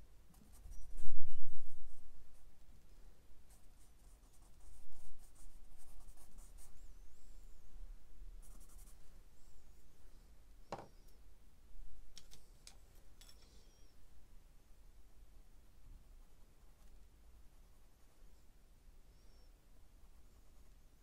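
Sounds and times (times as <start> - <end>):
knock: 10.7 - 10.9.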